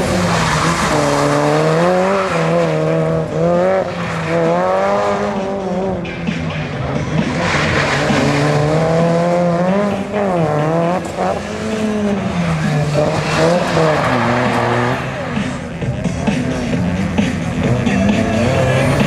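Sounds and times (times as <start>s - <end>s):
tyres skidding on wet surface: 0.0s - 5.8s, 7.0s - 15.6s
rally car engine revving: 0.0s - 19.0s.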